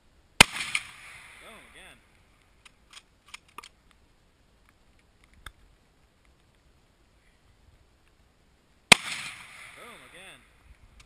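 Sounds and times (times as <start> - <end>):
loud gunshot: 0.4 - 1.6, 8.9 - 10.3
faint clicks: 2.1 - 7.4, 8.0 - 8.2.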